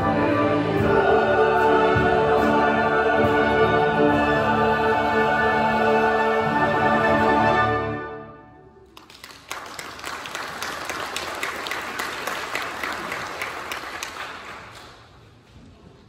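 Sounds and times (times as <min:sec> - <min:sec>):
choir and orchestra chord: 0:00.0 - 0:08.7
congregation applauding: 0:08.8 - 0:15.2.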